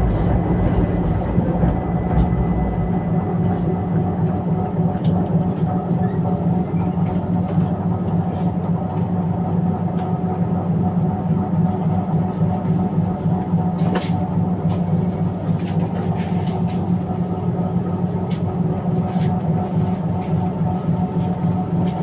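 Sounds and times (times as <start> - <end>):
steady tones: 0.0 - 5.0
tram rumble and hum: 0.0 - 22.0.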